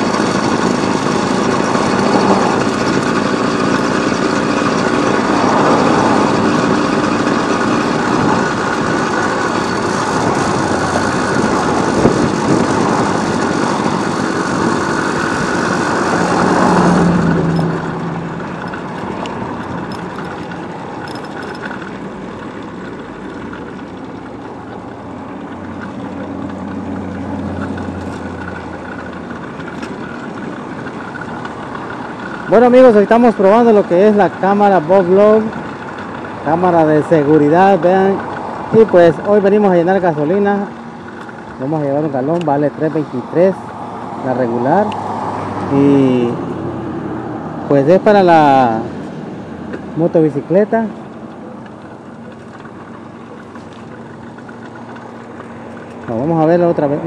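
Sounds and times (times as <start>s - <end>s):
motorcycle engine running: 0.0s - 57.0s
wind noise on microphone: 5.0s - 21.0s.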